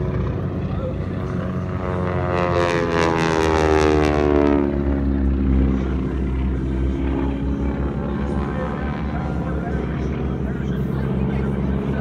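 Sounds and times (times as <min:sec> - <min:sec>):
aircraft passing overhead: 0:00.0 - 0:12.0.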